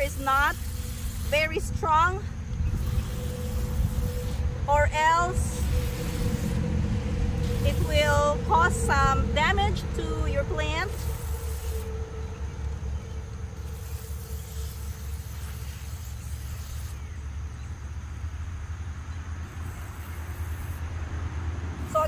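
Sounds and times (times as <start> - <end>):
hose water spraying onto soil: 0.0 - 6.7, 7.4 - 9.1, 10.7 - 11.9, 13.6 - 17.1, 19.5 - 20.9
steady low rumble: 0.0 - 16.4.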